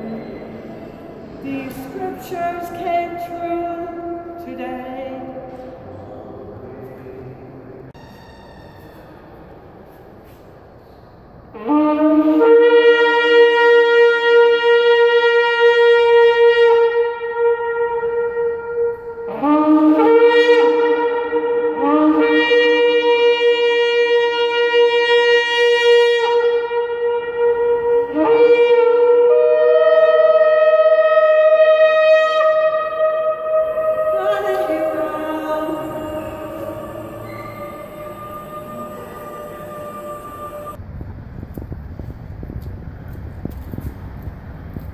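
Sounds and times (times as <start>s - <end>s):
shofars blown in long blasts: 0.0s - 40.8s.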